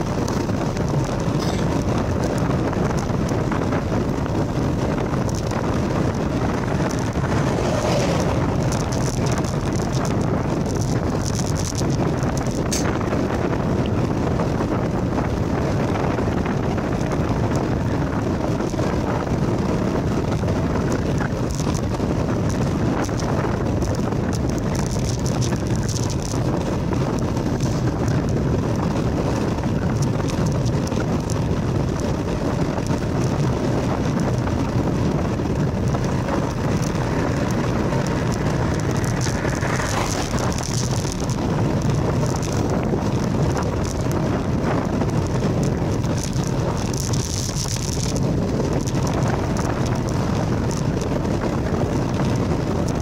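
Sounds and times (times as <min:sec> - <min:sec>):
tyres rolling on road: 0:00.0 - 0:53.0
wind noise on microphone: 0:00.0 - 0:53.0.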